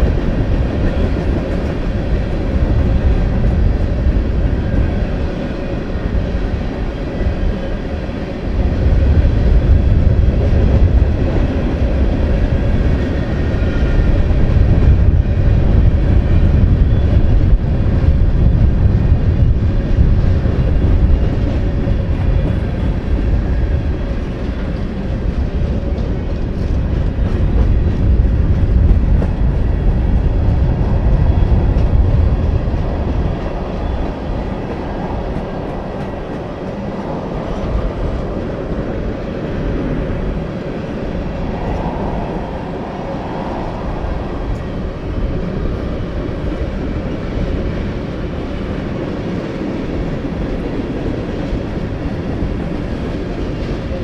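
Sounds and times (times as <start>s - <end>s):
freight train wheels rumbling on rail: 0.0s - 54.0s.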